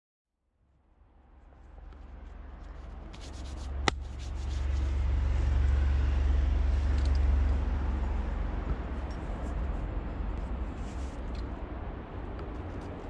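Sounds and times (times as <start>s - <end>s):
steady low rumble: 0.9s - 13.0s.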